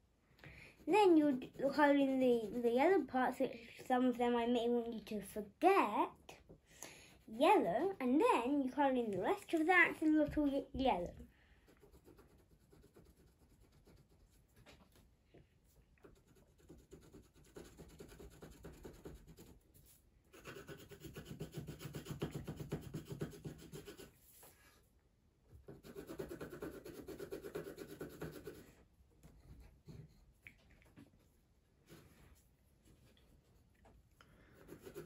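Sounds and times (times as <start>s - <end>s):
coloured pencil shading on paper: 0.7s - 3.1s, 11.6s - 15.0s, 16.0s - 24.6s, 25.5s - 30.3s, 31.7s - 33.7s, 34.5s - 35.0s.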